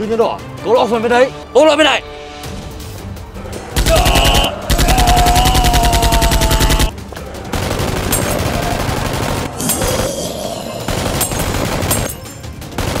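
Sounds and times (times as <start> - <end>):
automatic gunfire bursts: 12.8 - 13.0.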